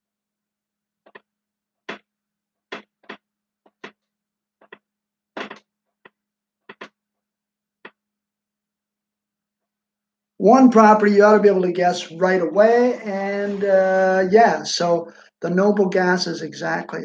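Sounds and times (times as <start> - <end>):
marker writing on whiteboard: 2.7 - 4.0, 4.6 - 7.0.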